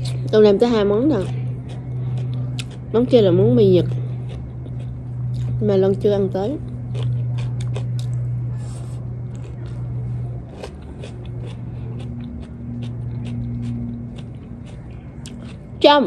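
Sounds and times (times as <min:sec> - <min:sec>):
person chewing salad: 0:00.0 - 0:00.3, 0:01.1 - 0:05.6, 0:06.6 - 0:15.8
low mechanical hum: 0:00.0 - 0:16.0.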